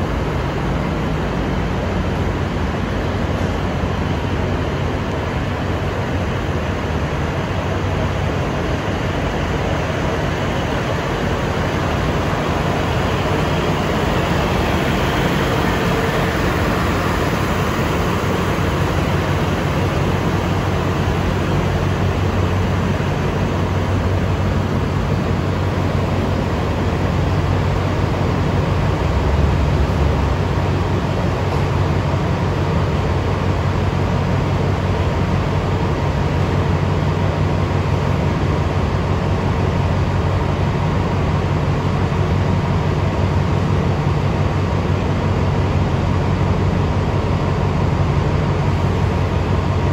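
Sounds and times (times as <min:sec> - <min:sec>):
diesel train engines droning: 0:00.0 - 0:49.9.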